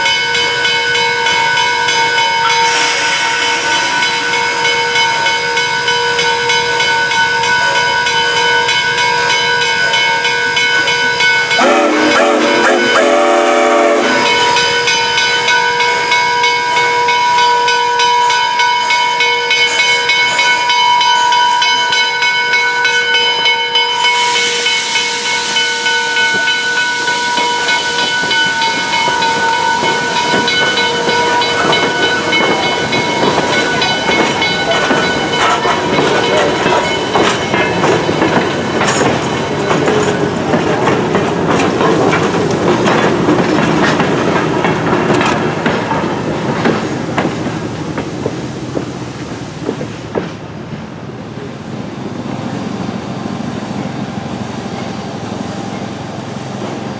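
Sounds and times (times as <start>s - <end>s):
steam locomotive whistle: 0.0s - 7.9s, 11.4s - 19.8s, 23.7s - 36.6s
loud steam hiss: 0.3s - 7.5s, 11.2s - 20.7s, 23.7s - 56.9s
wheels clicking over rail joints: 27.5s - 50.5s.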